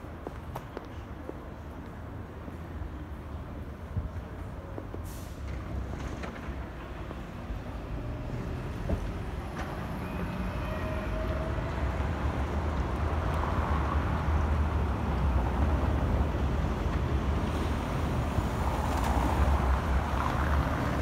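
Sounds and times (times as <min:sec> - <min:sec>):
city street traffic rumble: 0:00.0 - 0:21.0.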